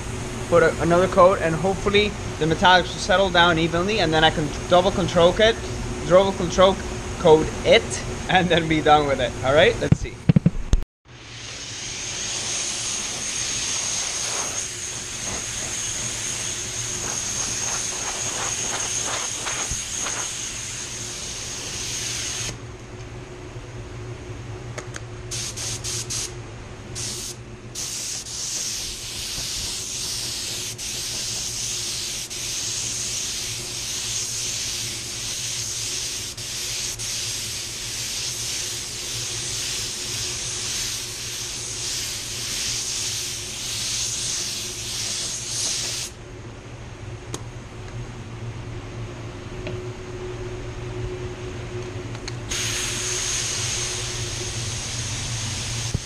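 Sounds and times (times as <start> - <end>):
steady low hum: 0.0 - 56.0
spray gun hissing: 11.2 - 22.6, 25.3 - 26.3, 27.0 - 46.2, 52.5 - 56.0.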